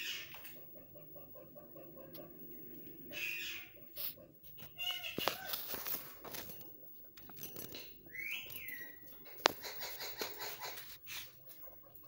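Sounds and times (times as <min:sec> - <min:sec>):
parakeets squawking: 0:00.0 - 0:01.2, 0:02.9 - 0:05.6, 0:08.1 - 0:11.3.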